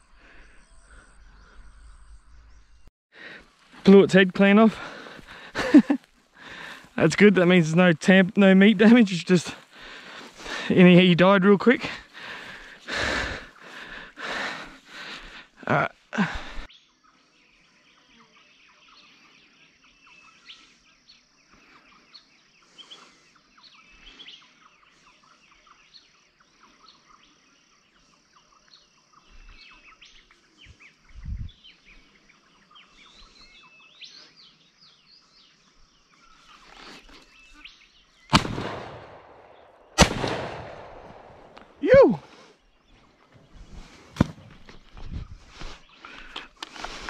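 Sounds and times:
birds calling and chirping: 0:00.0 - 0:47.0
shotgun shot: 0:38.3 - 0:41.8.

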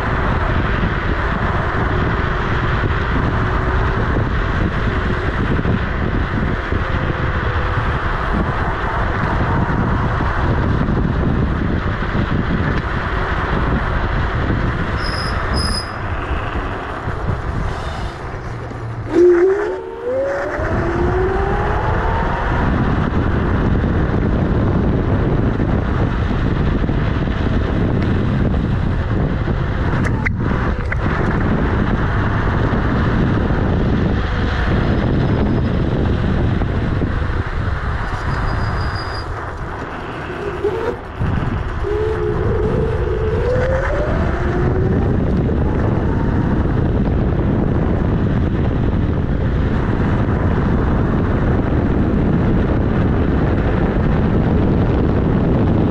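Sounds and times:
tyre rumbling on road: 0:00.0 - 0:55.9
electric motor whine rising: 0:18.7 - 0:23.1, 0:39.1 - 0:46.8.

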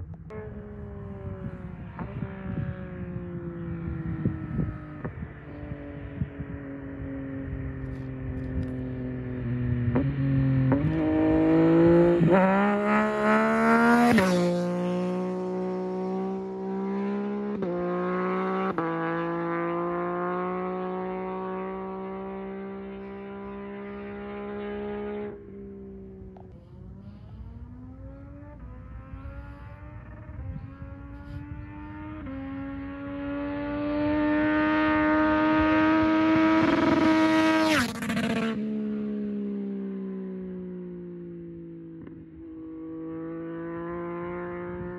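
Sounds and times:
motorcycle engine accelerating: 0:00.0 - 0:44.9.

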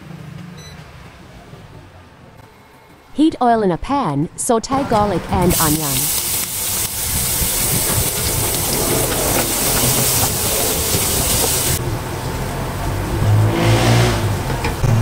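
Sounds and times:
garlic sizzling in hot oil: 0:05.5 - 0:11.8.

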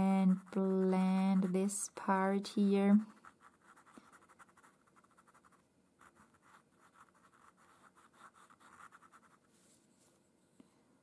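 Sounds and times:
pencil scratching on paper: 0:00.0 - 0:01.8, 0:03.0 - 0:09.8.

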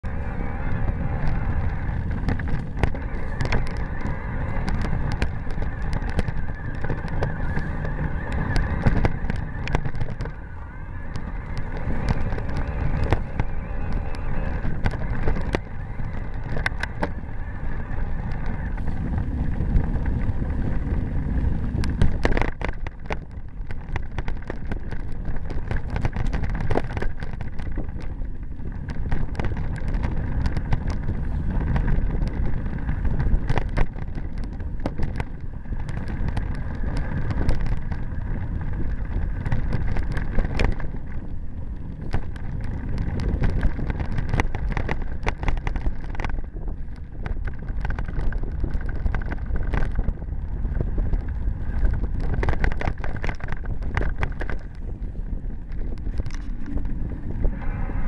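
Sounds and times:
bike rattling over bumps: 0:00.0 - 0:58.0
bike tyres on dirt: 0:00.0 - 0:58.0
wind on microphone: 0:00.0 - 0:58.0.

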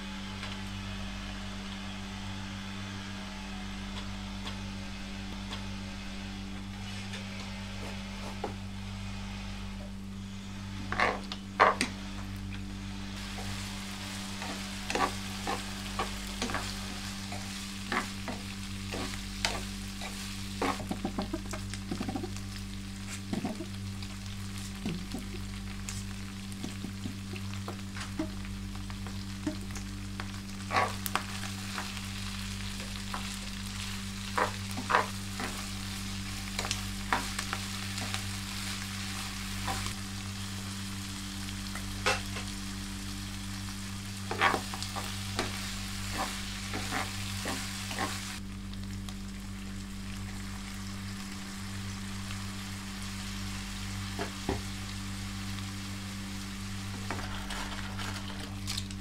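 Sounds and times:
low hum: 0:00.0 - 0:59.0
spatula scraping a pan: 0:13.2 - 0:22.2, 0:30.6 - 0:32.0, 0:32.7 - 0:40.0, 0:44.3 - 0:48.4
meat sizzling in a frying pan: 0:13.2 - 0:59.0.

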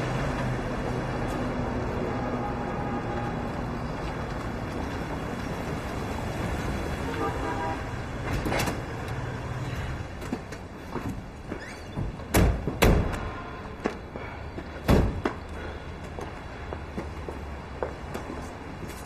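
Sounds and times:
vehicle rumble: 0:00.0 - 0:19.0
loud thumps: 0:12.0 - 0:13.3.

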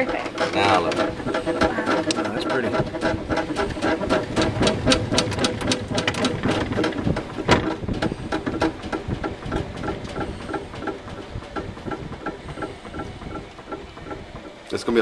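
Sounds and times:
loud knock: 0:00.0 - 0:10.2.

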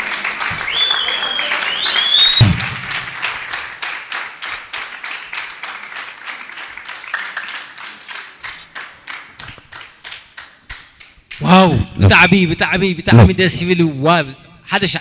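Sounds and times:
rhythmic clapping: 0:00.0 - 0:11.5.

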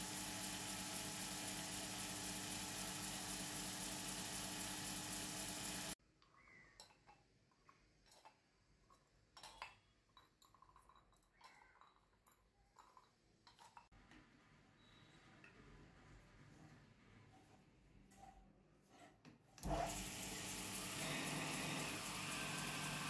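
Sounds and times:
lathe running: 0:00.0 - 0:06.0, 0:19.6 - 0:23.0
metal cups clinking and tapping: 0:08.0 - 0:13.9.

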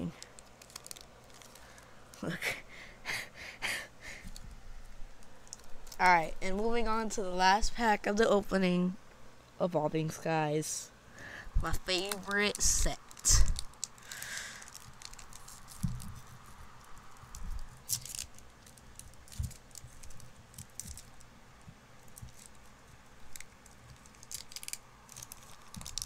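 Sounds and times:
foil pack crinkling: 0:00.1 - 0:02.3, 0:05.1 - 0:06.7, 0:11.6 - 0:21.4, 0:22.0 - 0:26.0.

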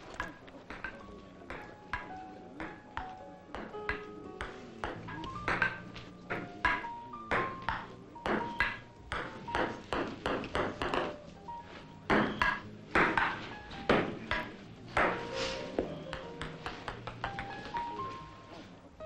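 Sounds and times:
faint background music: 0:00.0 - 0:19.0
table tennis ball clicking: 0:00.1 - 0:11.2, 0:16.0 - 0:18.0.

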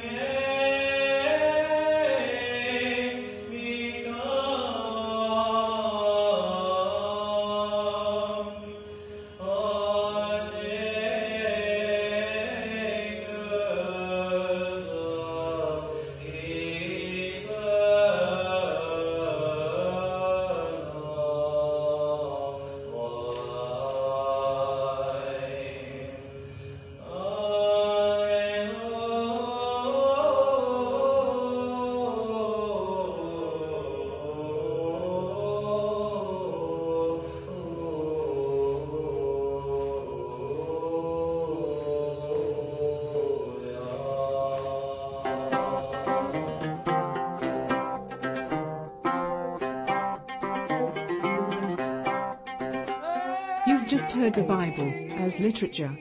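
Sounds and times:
voices chanting slow melody: 0:33.5 - 0:56.0.

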